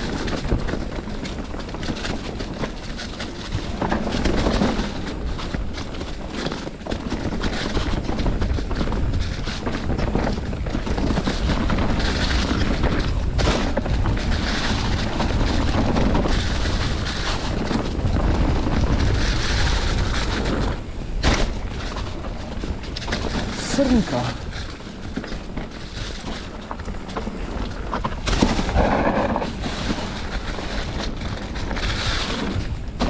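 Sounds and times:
bike rattling and knocking: 0.0s - 33.0s
wind buffeting microphone: 0.0s - 33.0s
tyres on dirt and dry leaves: 3.6s - 32.9s.

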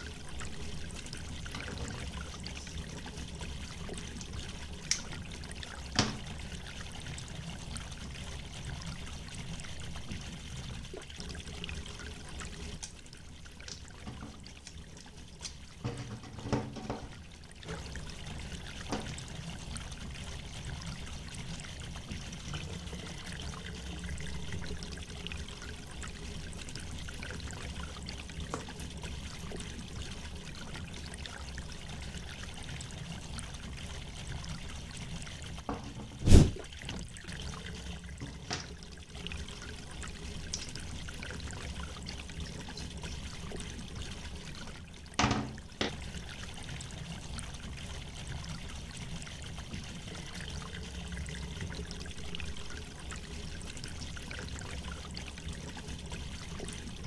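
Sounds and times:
knocks on wooden tabletop: 15.8s - 17.1s, 35.7s - 36.5s, 45.2s - 46.0s.

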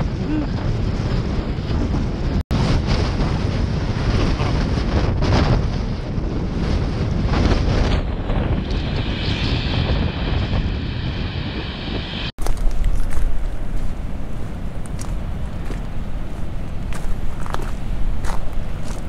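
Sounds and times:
strong wind buffeting microphone: 0.0s - 19.0s.

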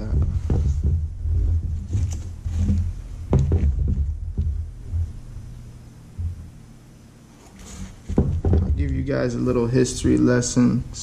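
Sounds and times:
sneaker handling noise: 0.0s - 5.4s.

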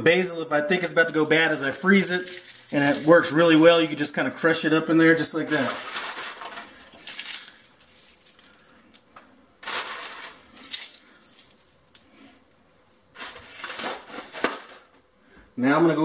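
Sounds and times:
crushing frozen leaves by hand: 1.8s - 3.9s, 5.4s - 9.0s, 9.6s - 12.4s, 13.1s - 14.9s.

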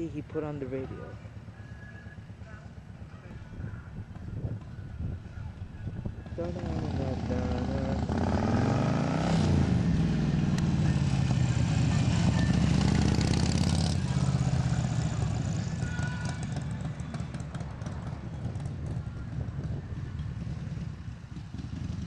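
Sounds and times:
motorcycle engine passing by: 6.2s - 22.0s.

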